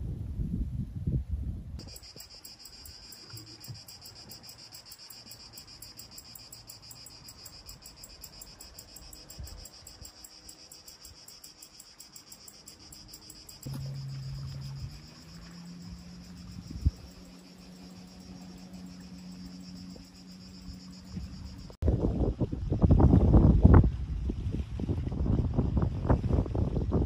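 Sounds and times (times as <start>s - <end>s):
insects chirping: 1.8s - 21.8s
steady low hum: 13.1s - 21.8s.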